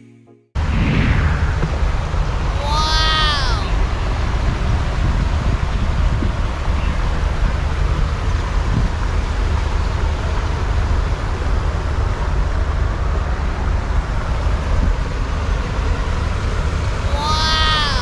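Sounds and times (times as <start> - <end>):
wind buffeting microphone: 3.8 - 9.1.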